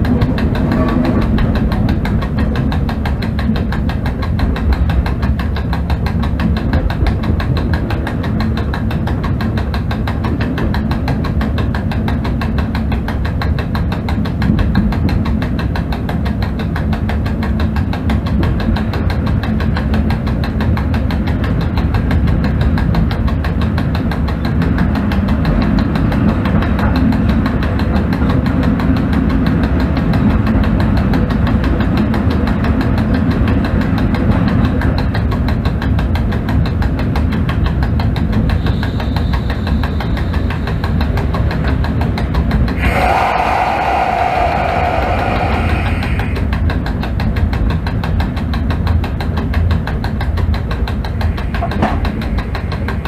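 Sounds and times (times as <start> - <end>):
locomotive cab rumble: 0.0 - 53.0
fast even rattle: 39.7 - 53.0.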